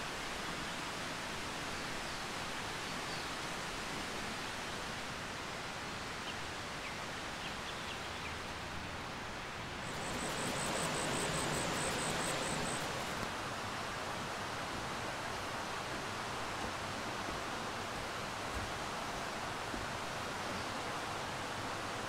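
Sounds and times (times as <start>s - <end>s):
river rushing: 8.0s - 20.4s
faint bird chirps: 9.8s - 13.2s
high pulsing call: 9.8s - 13.2s.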